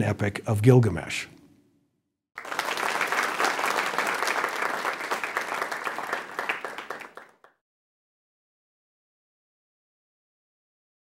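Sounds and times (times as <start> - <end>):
audience applauding: 2.4 - 7.6.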